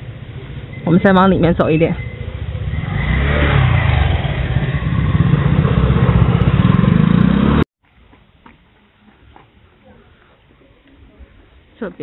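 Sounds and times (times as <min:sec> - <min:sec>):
scooter engine passing by: 0:01.9 - 0:07.6.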